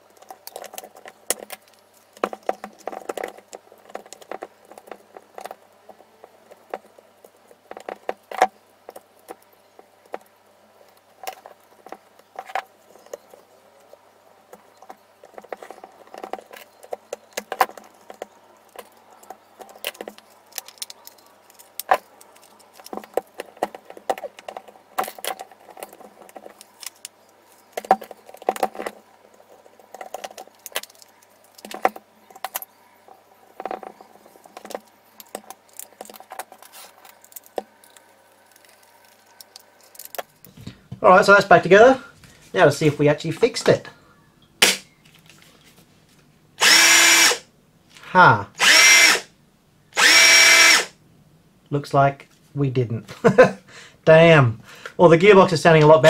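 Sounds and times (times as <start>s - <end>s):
plastic parts clicking and rattling: 0.0s - 40.9s.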